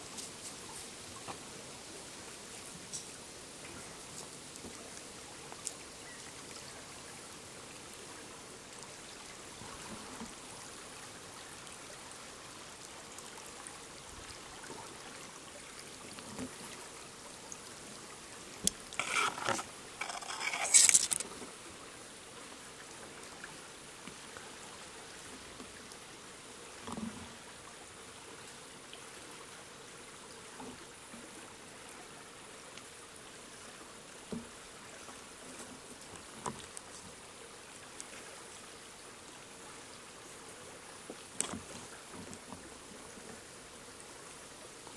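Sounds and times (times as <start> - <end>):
leaves and twigs rustling: 0.0 - 1.4, 18.6 - 21.5
stream trickling: 0.0 - 44.9.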